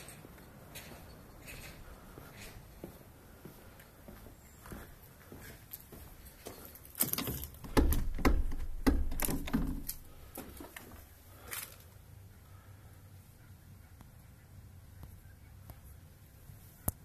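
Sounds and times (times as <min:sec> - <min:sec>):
clicks knocks and low bumps: 0:07.0 - 0:10.8.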